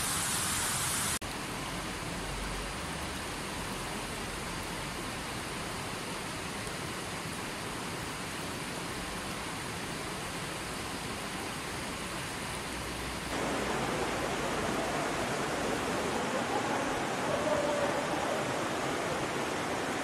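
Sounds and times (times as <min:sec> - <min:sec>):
river flowing over rocks: 0:09.5 - 0:20.0.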